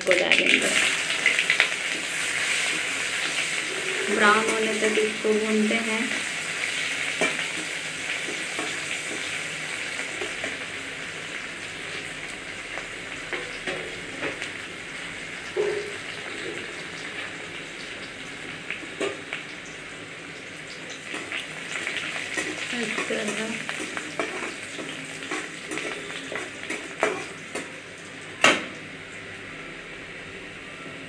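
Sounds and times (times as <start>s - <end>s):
onions sizzling in oil: 0.0s - 31.0s
metal spatula scraping pan: 2.4s - 5.4s, 21.1s - 27.6s.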